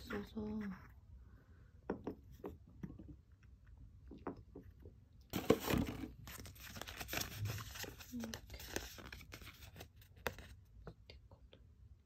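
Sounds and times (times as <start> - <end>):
paper sheet crinkling: 5.4 - 10.6.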